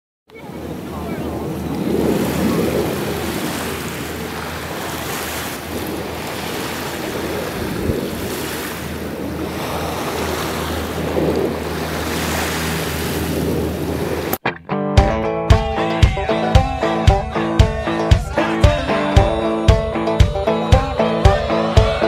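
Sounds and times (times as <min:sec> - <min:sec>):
wind rushing over microphone: 0:00.4 - 0:14.4.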